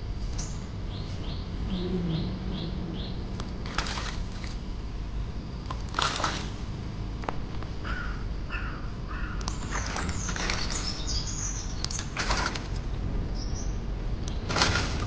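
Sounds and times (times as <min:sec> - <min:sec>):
bird calling: 0:00.3 - 0:03.8, 0:07.8 - 0:12.1.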